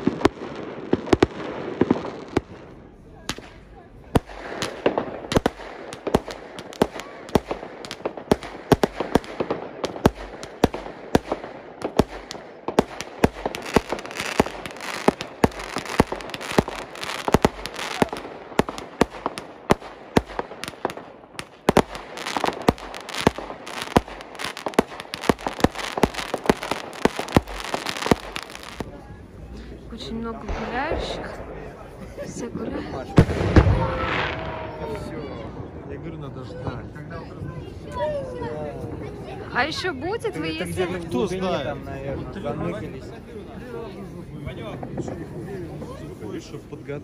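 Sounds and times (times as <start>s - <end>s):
fireworks bangs: 0.0s - 29.2s, 30.0s - 36.1s, 44.6s - 46.6s
firecrackers crackling: 0.0s - 35.7s.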